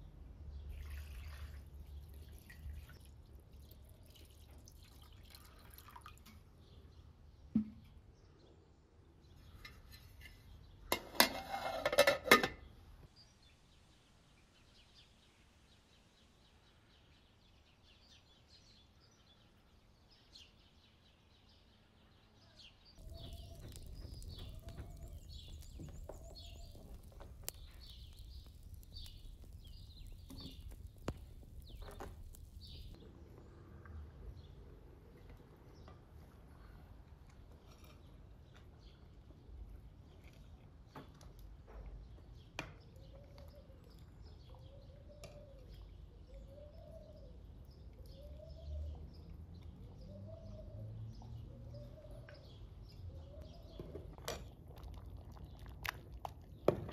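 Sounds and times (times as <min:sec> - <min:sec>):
birds chirping: 0:12.6 - 0:36.8, 0:41.7 - 0:54.6.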